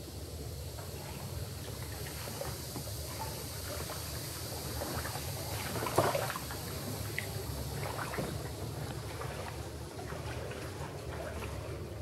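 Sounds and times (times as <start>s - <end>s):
paddle splashing in water: 3.6s - 12.0s.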